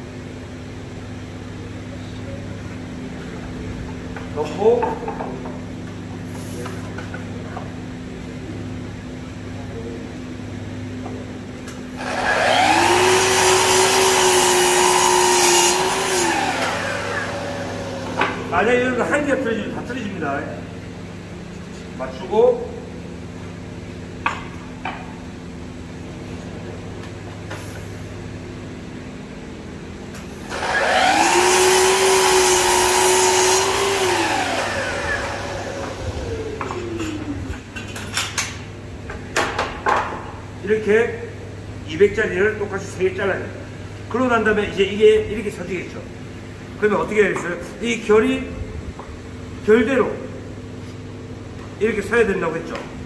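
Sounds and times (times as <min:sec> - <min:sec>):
dust extractor running: 0:11.9 - 0:19.0, 0:30.3 - 0:37.4
miter saw motor whining: 0:12.0 - 0:18.4, 0:30.5 - 0:36.7
saw cutting plywood: 0:12.0 - 0:18.4, 0:30.5 - 0:36.1
steady low hum: 0:16.5 - 0:30.6.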